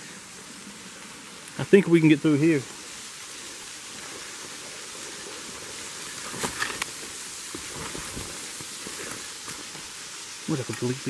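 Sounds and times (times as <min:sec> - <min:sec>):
steady hiss: 0:00.0 - 0:11.0
footsteps through dry leaves: 0:02.8 - 0:10.2.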